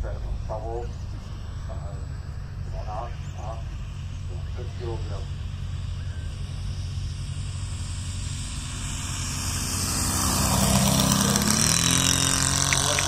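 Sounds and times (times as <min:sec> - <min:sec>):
model plane engine passing: 0:00.0 - 0:13.0.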